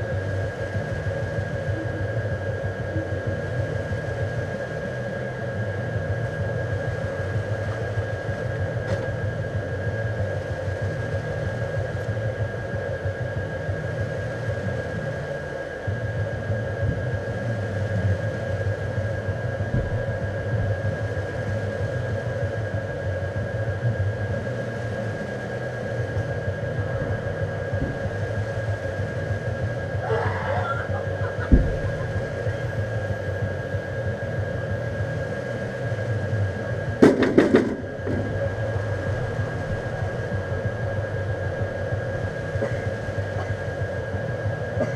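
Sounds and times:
low droning hum: 0.0 - 44.9
loud knocks: 31.4 - 32.0
thump: 31.5 - 31.9.

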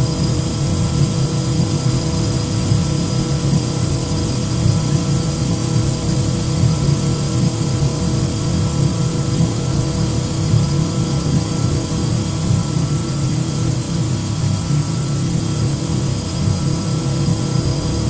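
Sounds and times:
faint high whine: 0.0 - 18.0.

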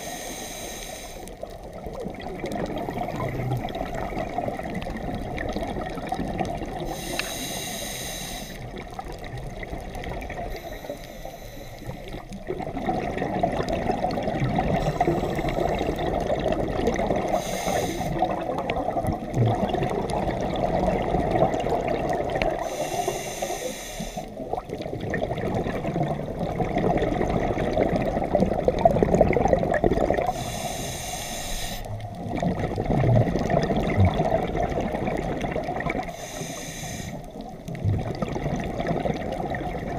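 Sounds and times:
diver inhaling through regulator: 0.0 - 1.4, 6.8 - 8.8, 10.5 - 12.3, 14.7 - 16.3, 17.2 - 18.4, 22.5 - 24.4, 30.2 - 31.9, 36.0 - 37.4
exhaled air bubbling: 0.0 - 39.9.

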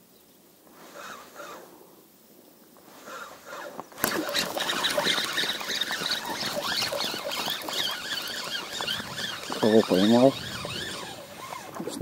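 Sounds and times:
fishing reel clicking and whirring: 3.0 - 12.0.

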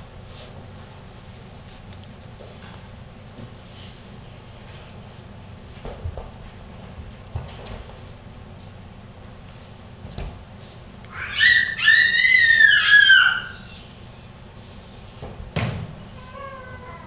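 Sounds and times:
puppy yelping: 11.1 - 13.8.

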